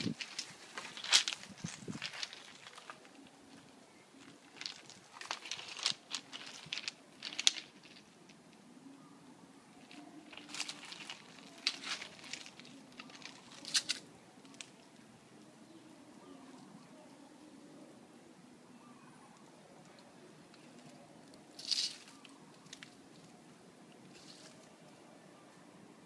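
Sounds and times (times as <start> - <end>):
dry leaves crunching: 0.0 - 8.1, 9.8 - 14.7, 21.5 - 23.0, 24.1 - 24.7.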